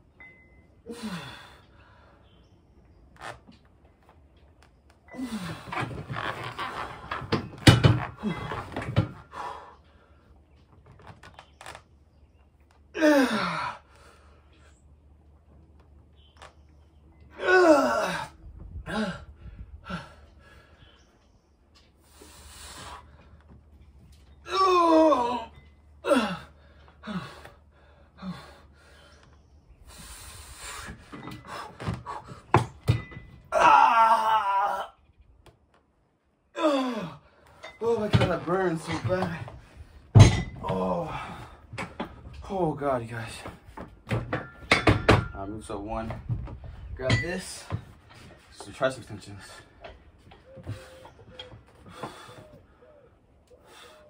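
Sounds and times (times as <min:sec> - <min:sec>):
man breathing hard: 0:00.9 - 0:02.2, 0:18.0 - 0:21.0, 0:22.0 - 0:23.4, 0:26.0 - 0:32.5, 0:51.7 - 0:54.0
man groaning with strain: 0:13.0 - 0:13.9, 0:17.4 - 0:19.3, 0:24.5 - 0:27.4, 0:36.6 - 0:37.2
man grunting: 0:17.4 - 0:18.3, 0:24.5 - 0:26.5.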